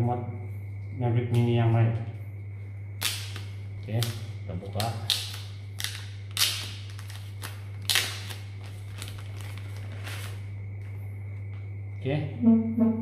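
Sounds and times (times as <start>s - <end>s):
steady low hum: 0.0s - 13.0s
plastic wrapping crinkling: 3.0s - 10.6s.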